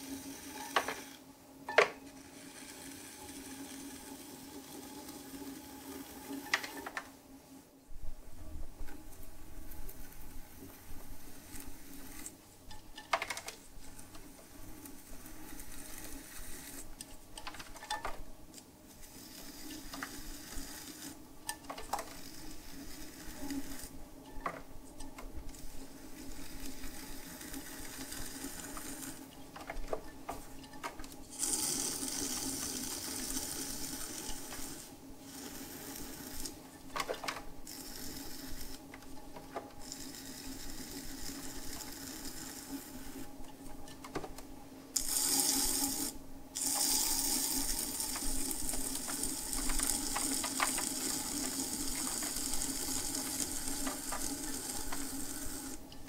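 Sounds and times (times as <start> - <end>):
pottery wheel motor hum: 0.0 - 56.0.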